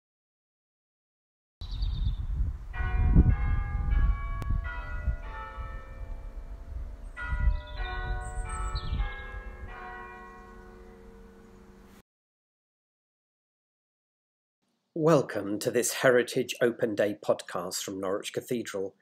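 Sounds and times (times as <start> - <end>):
low rumble: 2.2 - 9.7
church bells ringing: 2.7 - 12.0.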